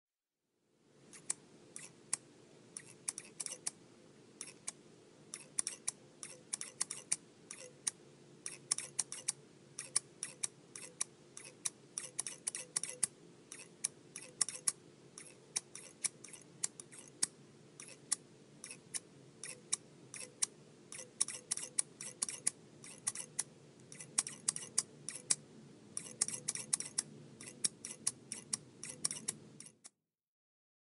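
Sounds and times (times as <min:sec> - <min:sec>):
faint background noise: 0:00.6 - 0:29.9
scissors snipping: 0:02.8 - 0:03.8, 0:04.4 - 0:25.4, 0:26.0 - 0:30.0.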